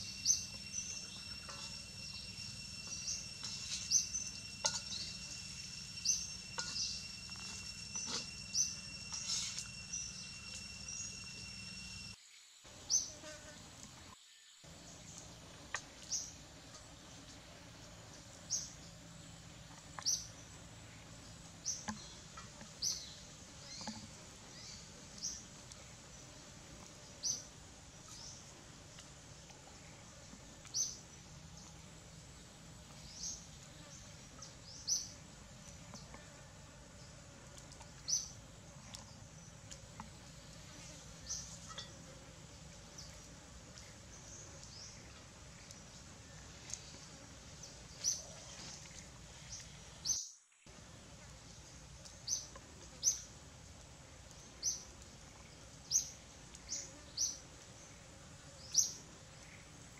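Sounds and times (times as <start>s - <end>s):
bird chirping: 0.0s - 12.2s
faint forest background: 0.0s - 59.9s.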